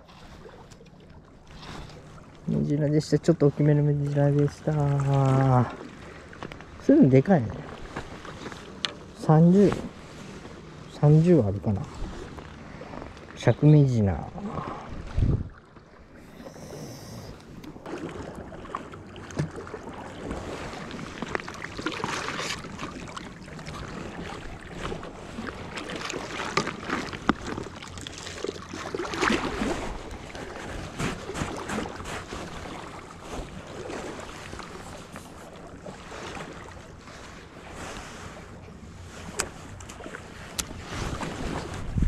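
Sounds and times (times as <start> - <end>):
wind on microphone: 14.4 - 15.6, 40.6 - 42.0
small waves washing against rocks: 16.2 - 38.2.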